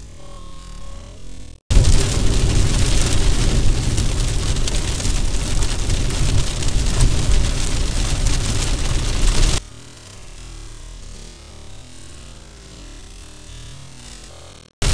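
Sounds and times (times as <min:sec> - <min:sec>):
heavy rain hissing on car: 0:01.7 - 0:09.6
tyre and road rumble: 0:01.7 - 0:09.6.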